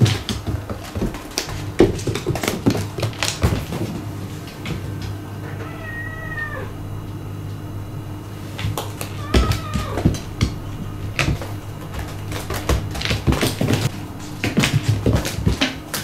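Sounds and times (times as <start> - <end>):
steady low hum: 0.0 - 16.0
cat meowing: 5.4 - 6.8, 9.0 - 11.0
ball bouncing on wooden floor: 8.6 - 15.9.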